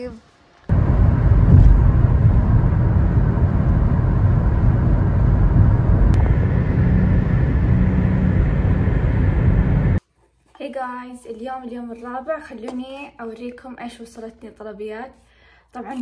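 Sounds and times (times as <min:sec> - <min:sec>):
loud low rumbling: 0:00.7 - 0:10.0.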